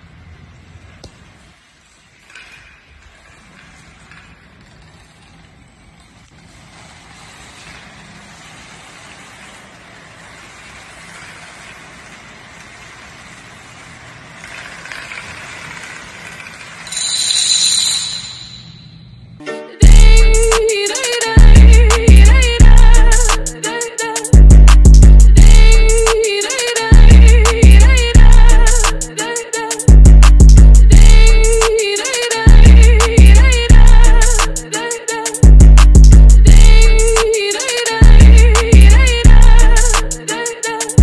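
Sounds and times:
high-pitched ringing tone: 16.9s - 19.4s.

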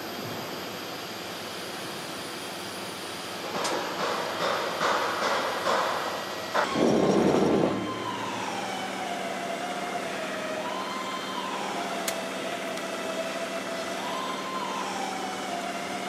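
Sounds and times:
loud rush of noise: 6.6s - 9.2s
siren wailing: 6.6s - 16.0s.

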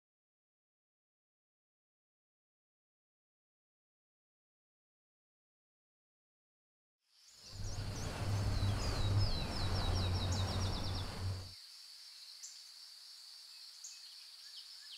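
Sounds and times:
birds chirping: 7.4s - 11.5s
low rumble: 7.6s - 11.5s.

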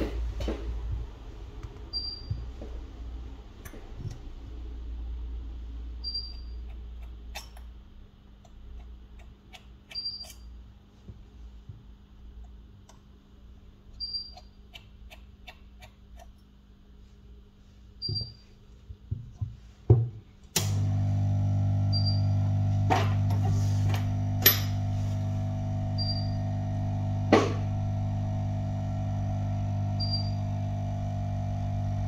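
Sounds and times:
steady low hum: 0.0s - 32.0s
short high beep: 26.0s - 26.4s.

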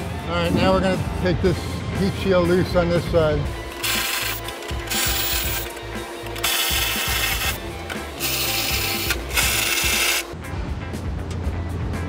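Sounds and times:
hand ratchet wrench ratcheting: 3.6s - 10.3s.

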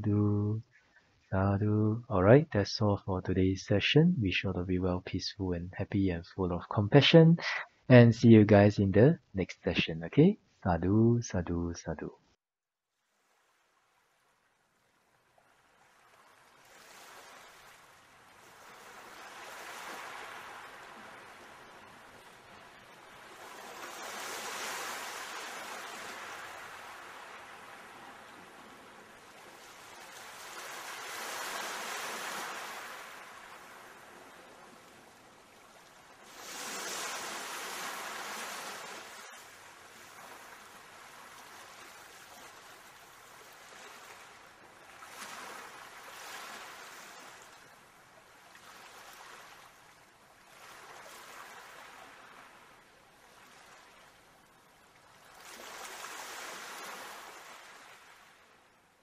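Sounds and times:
waves washing in: 15.5s - 54.1s, 55.0s - 58.7s.

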